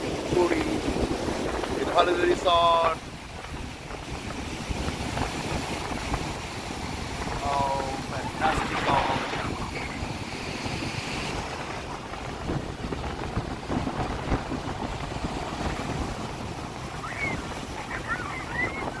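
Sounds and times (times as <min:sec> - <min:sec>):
sea surf breaking: 0:00.0 - 0:19.0
wind rumbling on microphone: 0:00.0 - 0:19.0.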